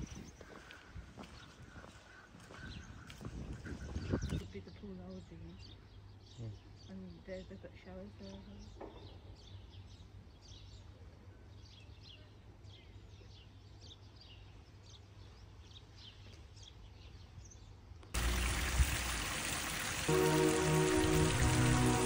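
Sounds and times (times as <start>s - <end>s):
small birds chirping: 0.0s - 18.7s
loud rushing water-like hiss: 18.2s - 22.0s
music: 20.1s - 22.0s.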